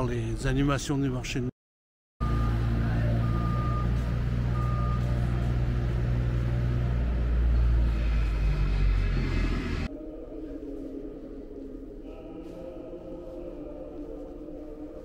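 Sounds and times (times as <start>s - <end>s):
reversing alarm beep: 2.2s - 6.5s
heavy vehicle engine running: 2.2s - 9.9s.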